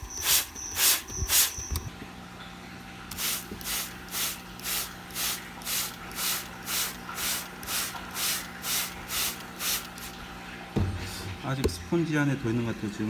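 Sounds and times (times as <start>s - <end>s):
spray bottle squirting water: 0.0s - 1.8s, 3.1s - 10.2s.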